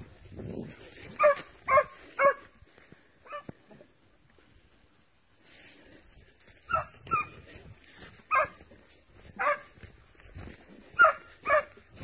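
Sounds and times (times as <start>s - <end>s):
dogs barking: 1.1s - 2.6s, 3.2s - 3.5s, 6.6s - 7.5s, 8.2s - 8.7s, 9.3s - 9.8s, 10.9s - 11.9s.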